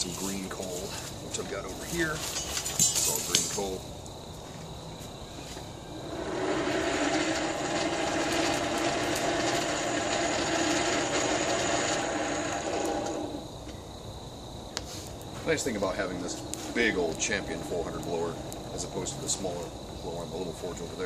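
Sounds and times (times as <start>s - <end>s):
hand-crank blower whirring: 6.1s - 13.5s.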